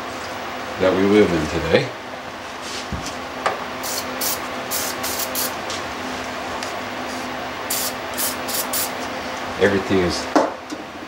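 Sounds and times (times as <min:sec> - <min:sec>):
steady low hum: 0:00.0 - 0:11.0
hissy rasping bursts: 0:03.8 - 0:05.5, 0:07.7 - 0:09.0.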